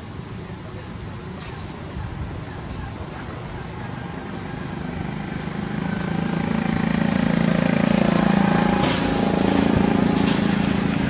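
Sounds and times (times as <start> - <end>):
vehicle engine droning: 3.5 - 11.0.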